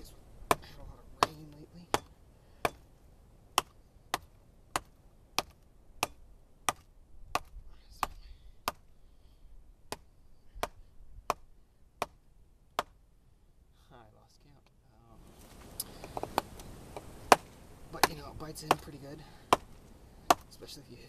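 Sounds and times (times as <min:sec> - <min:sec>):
knife chopping into wet wood: 0:00.4 - 0:02.9, 0:03.5 - 0:08.8, 0:09.9 - 0:12.2, 0:12.8 - 0:13.0, 0:17.3 - 0:20.6.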